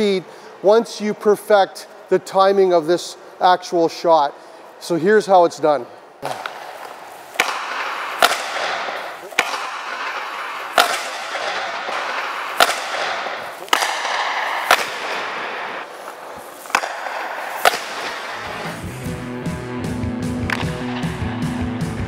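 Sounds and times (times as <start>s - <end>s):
hockey stick hitting puck: 6.2s - 18.9s, 20.4s - 21.3s
skates scraping on ice: 6.2s - 18.9s.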